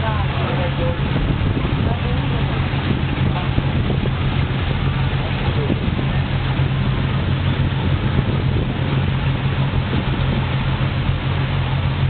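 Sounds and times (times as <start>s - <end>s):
boat engine running: 0.0s - 12.0s
wind and water rushing: 0.0s - 12.0s.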